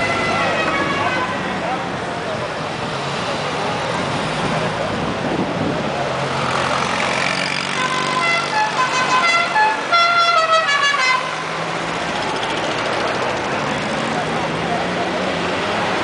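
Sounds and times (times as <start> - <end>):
car engines running: 0.0 - 10.0, 10.7 - 16.0
musical car horn tune: 7.8 - 11.5.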